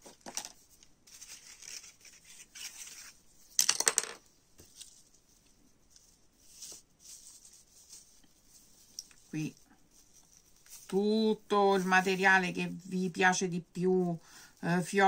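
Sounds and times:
ribbon rustling: 0:00.0 - 0:03.6, 0:04.2 - 0:13.0.

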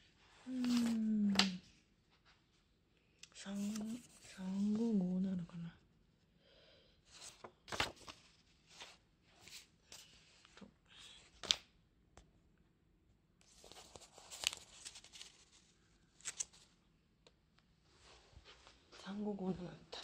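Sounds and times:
paper rustling: 0:00.5 - 0:01.6, 0:03.5 - 0:04.9, 0:07.1 - 0:10.6, 0:13.4 - 0:16.8.

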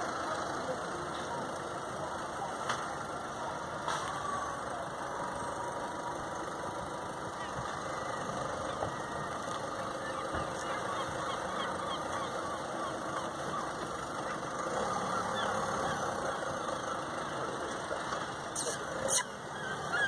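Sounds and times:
vehicle engine idling: 0:00.0 - 0:20.0
bird chirps: 0:18.5 - 0:20.0.

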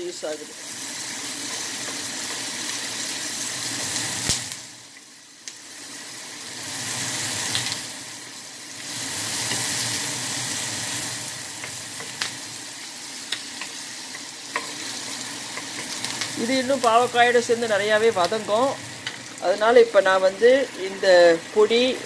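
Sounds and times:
onions sizzling in oil: 0:00.0 - 0:22.0
wooden spoon stirring in pan: 0:00.8 - 0:04.0, 0:13.3 - 0:16.8.

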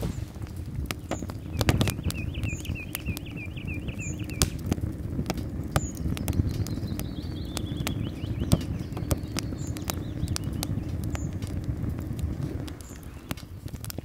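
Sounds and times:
stove low rumble: 0:00.0 - 0:14.0
wood fire crackling and popping: 0:00.0 - 0:14.0
bird calling: 0:00.9 - 0:04.7, 0:05.5 - 0:11.4, 0:12.6 - 0:14.0.

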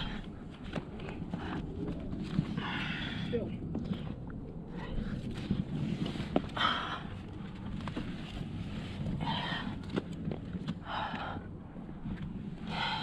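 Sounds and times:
wind rumbling on microphone: 0:00.0 - 0:13.0
person breathing hard: 0:02.5 - 0:05.2, 0:10.8 - 0:11.9, 0:12.6 - 0:13.0.

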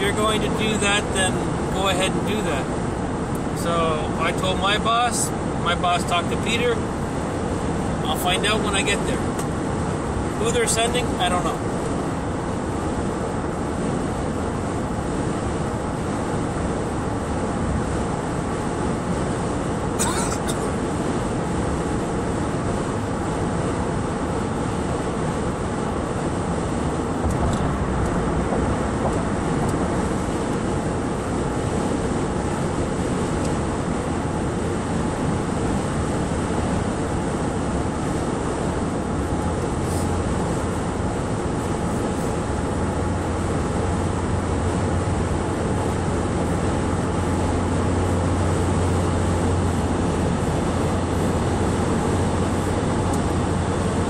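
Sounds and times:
low drone: 0:00.0 - 0:54.0
tyre and wind road noise: 0:00.0 - 0:54.0.

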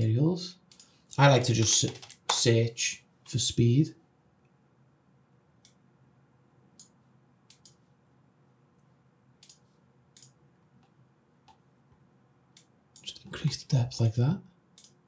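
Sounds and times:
computer mouse clicks: 0:00.7 - 0:02.4, 0:06.8 - 0:07.8, 0:08.8 - 0:11.6, 0:14.8 - 0:15.0.

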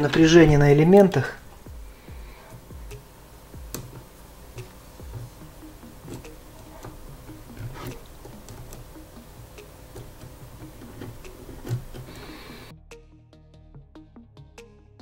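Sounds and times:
probe tips clicking on terminals: 0:01.0 - 0:12.7.

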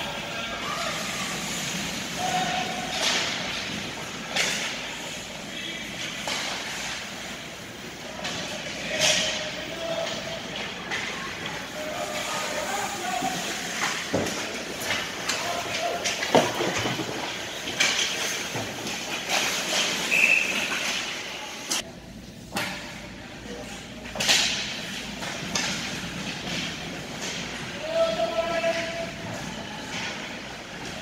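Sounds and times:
spectators' voices: 0:00.0 - 0:21.8
hockey sticks and puck clacking: 0:00.0 - 0:23.1, 0:23.9 - 0:31.0
skate blades scraping ice: 0:00.2 - 0:08.9, 0:11.3 - 0:21.8.

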